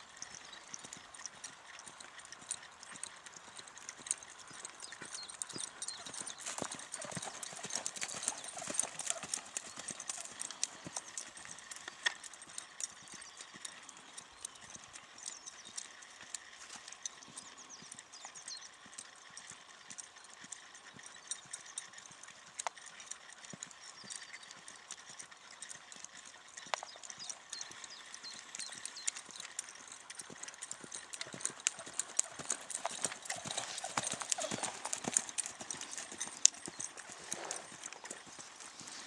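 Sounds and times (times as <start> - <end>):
horse hoofbeats on sand: 0.2 - 15.6, 23.4 - 39.0.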